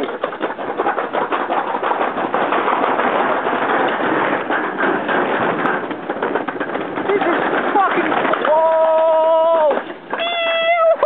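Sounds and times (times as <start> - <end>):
sled rattling down metal chute: 0.0 - 11.0.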